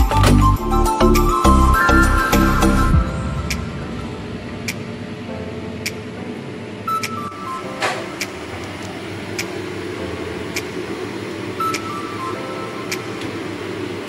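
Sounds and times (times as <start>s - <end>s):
quiet background music: 0.0s - 14.0s
short falling melody: 0.7s - 8.5s
pot at a rolling boil: 7.7s - 14.0s.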